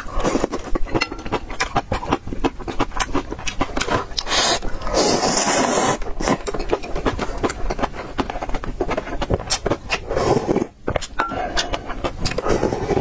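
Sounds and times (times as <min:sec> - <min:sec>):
wet chewing: 0:00.0 - 0:13.0
noodle slurping: 0:02.1 - 0:08.2, 0:08.8 - 0:13.0.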